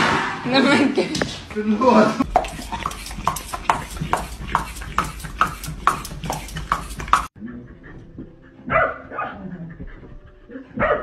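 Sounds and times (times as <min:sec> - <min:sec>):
dog chewing crunchy food: 0:02.2 - 0:07.4
dog barking: 0:08.6 - 0:09.7, 0:10.5 - 0:11.0.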